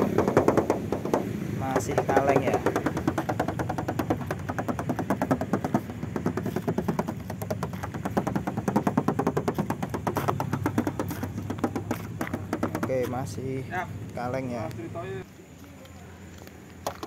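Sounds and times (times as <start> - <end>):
knuckles knocking on sheet metal: 0.0 - 13.1
steady low hum: 0.0 - 16.9.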